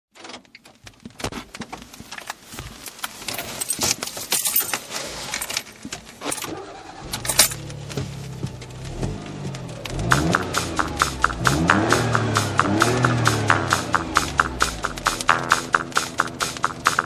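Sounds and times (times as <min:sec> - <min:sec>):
metallic clicks and jingling rattles: 0:03.3 - 0:07.9.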